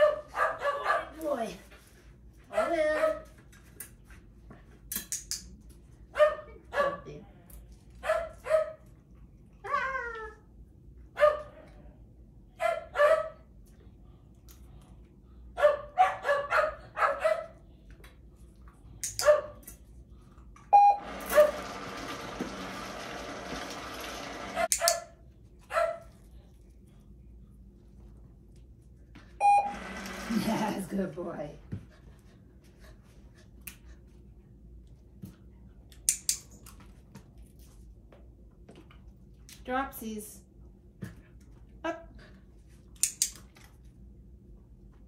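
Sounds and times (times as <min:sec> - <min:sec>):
puppy barking: 0:00.0 - 0:01.2, 0:02.5 - 0:03.2, 0:06.1 - 0:07.1, 0:08.0 - 0:08.8, 0:11.2 - 0:11.6, 0:12.6 - 0:13.4, 0:15.6 - 0:17.6, 0:19.2 - 0:19.6, 0:24.6 - 0:26.1
brief steady tone: 0:29.4 - 0:29.8.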